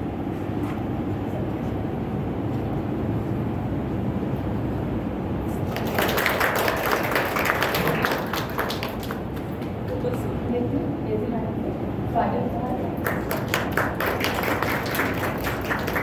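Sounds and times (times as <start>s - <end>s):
low room noise: 0.0s - 16.0s
audience clapping: 5.6s - 10.2s, 13.0s - 16.0s.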